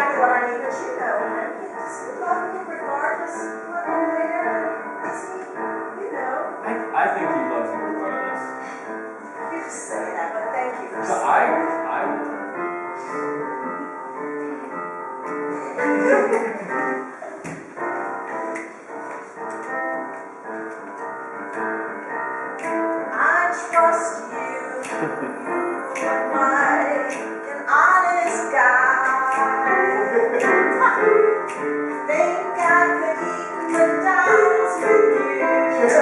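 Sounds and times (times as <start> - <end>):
woman singing: 0.0 - 6.5, 23.1 - 25.1, 25.8 - 31.2, 32.0 - 36.0
instrumental accompaniment: 0.0 - 36.0.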